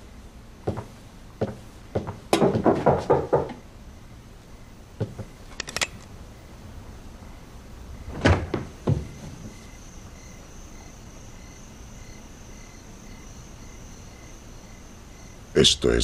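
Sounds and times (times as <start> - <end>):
crickets chirping: 0.0 - 16.0
wooden door thuds: 0.7 - 3.6, 8.0 - 9.6.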